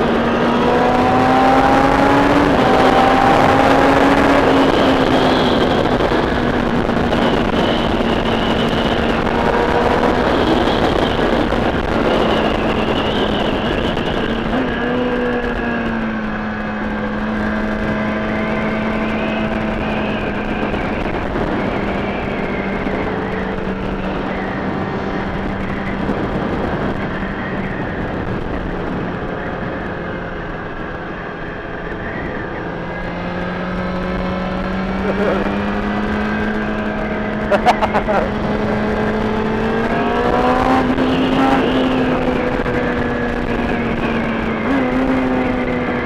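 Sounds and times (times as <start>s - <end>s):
motorcycle engine drone: 0.0s - 46.0s
wind rush over microphone: 0.0s - 46.0s.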